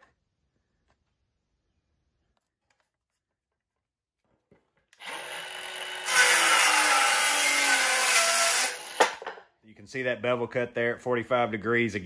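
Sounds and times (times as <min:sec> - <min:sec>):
circular saw cutting wood: 0:05.0 - 0:09.2
circular saw spinning up: 0:05.0 - 0:09.2.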